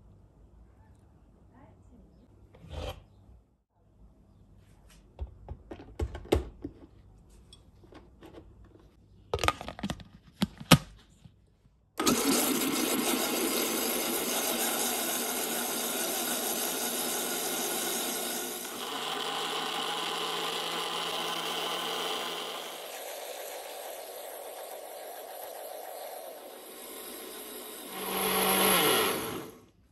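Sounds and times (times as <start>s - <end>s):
blender motor running: 12.0s - 29.7s.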